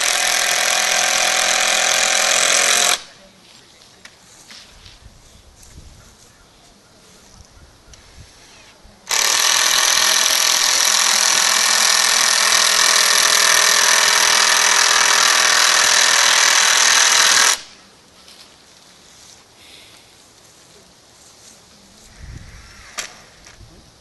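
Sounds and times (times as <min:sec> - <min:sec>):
power drill drilling into wood: 0:00.0 - 0:03.1, 0:08.4 - 0:17.7.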